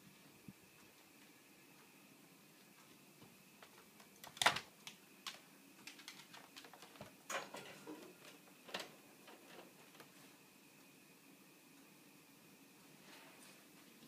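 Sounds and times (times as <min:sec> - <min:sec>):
wire playpen clicks and rattles: 0:03.6 - 0:10.1.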